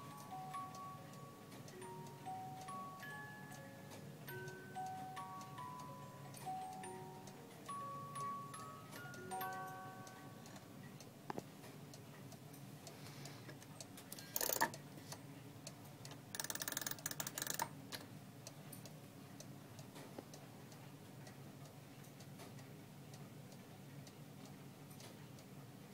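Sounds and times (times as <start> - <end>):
clock ticking: 0.0 - 13.0, 15.6 - 17.8.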